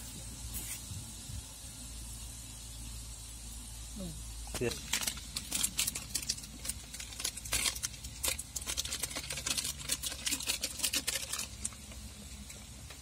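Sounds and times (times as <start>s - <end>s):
paper packet crinkling and tapping: 4.5s - 13.0s.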